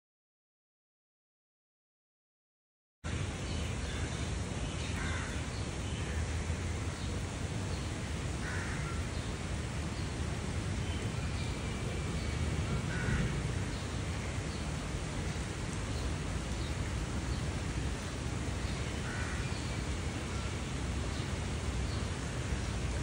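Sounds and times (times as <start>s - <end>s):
heavy rain falling on water: 3.1s - 23.0s
crow cawing: 5.0s - 5.4s, 8.4s - 9.0s, 12.8s - 13.3s, 19.0s - 19.5s.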